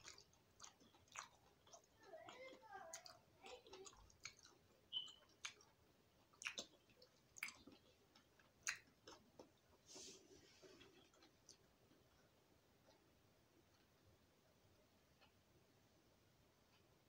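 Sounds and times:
person chewing with mouth clicks: 0.0s - 13.1s.

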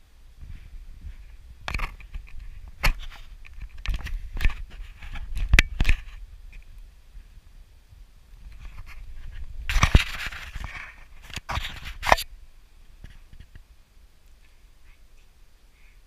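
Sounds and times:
rustling and scraping on grass: 0.4s - 7.2s, 8.4s - 12.3s.

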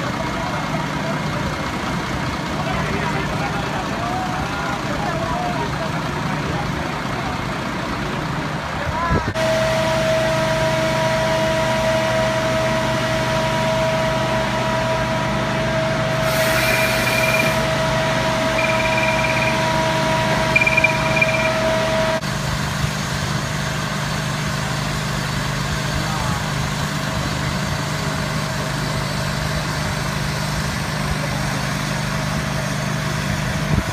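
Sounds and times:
engine whining and humming: 0.0s - 33.9s
short high beeps: 16.6s - 17.7s, 18.5s - 21.8s.

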